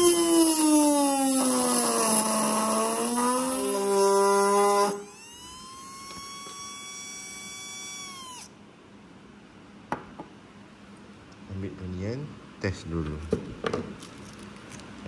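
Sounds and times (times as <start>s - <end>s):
electric motor high whine: 0.0s - 8.6s.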